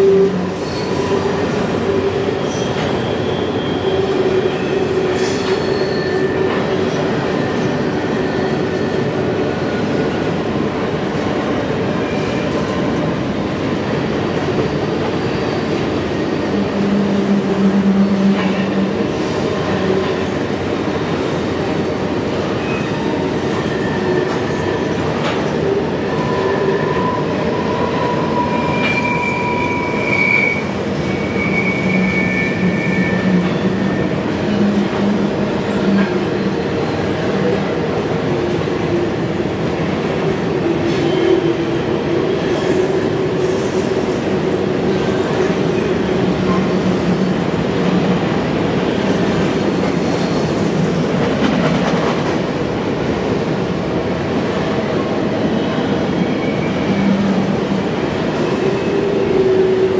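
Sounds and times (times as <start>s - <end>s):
train wheels rumbling on rail: 0.0s - 59.9s
high wheel squeals: 26.1s - 35.0s.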